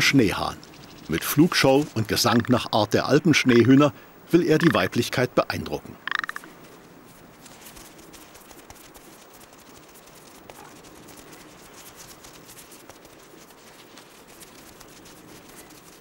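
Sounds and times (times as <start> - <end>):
bird feet crackling on snow: 0.3 - 2.6, 6.6 - 16.0.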